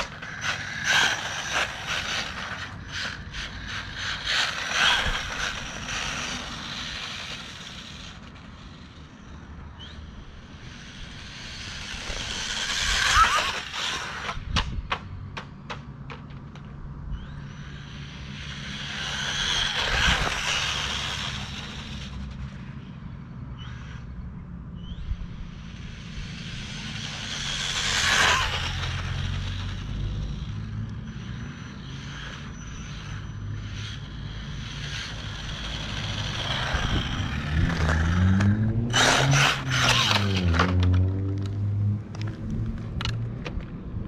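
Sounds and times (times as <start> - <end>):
tyre noise on asphalt: 0.0 - 22.8, 25.2 - 44.0
high-pitched motor whine: 0.0 - 44.0.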